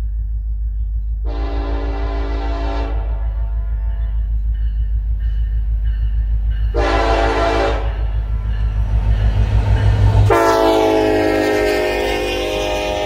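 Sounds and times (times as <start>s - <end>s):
low rumble of locomotives: 0.0s - 13.0s
locomotive horn blast: 1.3s - 4.2s, 6.7s - 13.0s.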